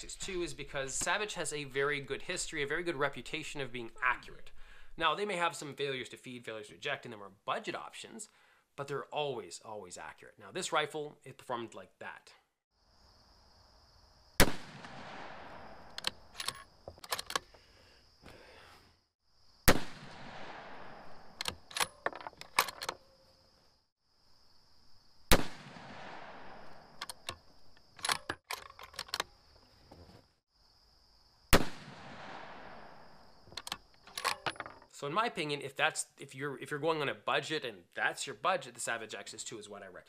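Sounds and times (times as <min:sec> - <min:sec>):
rifle shots: 0:14.4 - 0:16.0, 0:19.7 - 0:21.4, 0:25.3 - 0:27.0, 0:31.5 - 0:33.1
rifle bolt clicks: 0:15.9 - 0:17.5, 0:27.0 - 0:27.4.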